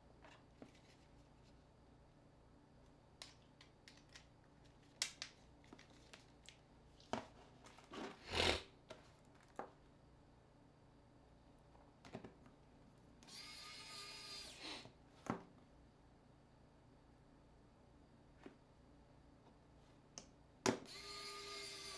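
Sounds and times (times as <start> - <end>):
plastic scrape: 7.6 - 8.7.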